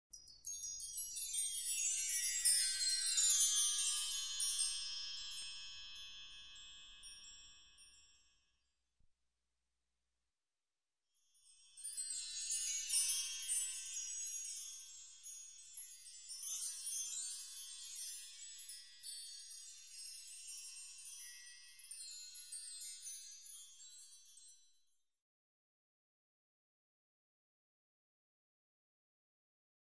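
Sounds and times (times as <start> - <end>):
high tinkling wind chimes: 0.1 - 8.7, 11.2 - 25.0.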